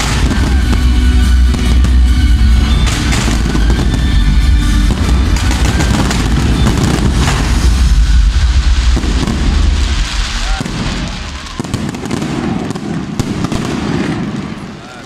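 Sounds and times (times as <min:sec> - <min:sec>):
fireworks booming and crackling: 0:00.0 - 0:15.0
sharp firework crack: 0:00.0 - 0:15.0.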